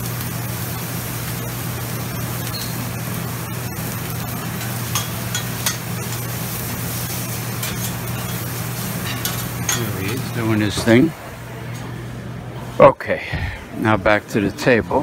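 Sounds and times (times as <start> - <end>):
food sizzling on a griddle: 0.0 - 10.8
metal spatulas clinking: 7.6 - 10.3.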